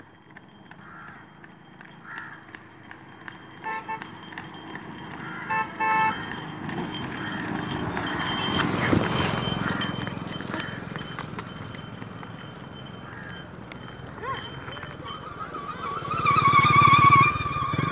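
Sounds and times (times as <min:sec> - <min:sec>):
car driving: 0:00.0 - 0:17.9
pony hoofbeats on tarmac: 0:00.0 - 0:17.9
car horn toots: 0:03.6 - 0:04.3, 0:05.2 - 0:06.5.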